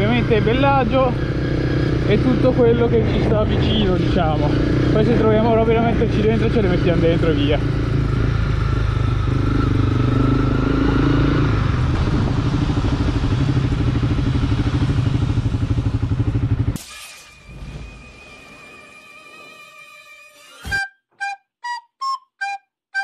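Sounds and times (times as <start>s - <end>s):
motorcycle engine running: 0.0s - 16.8s.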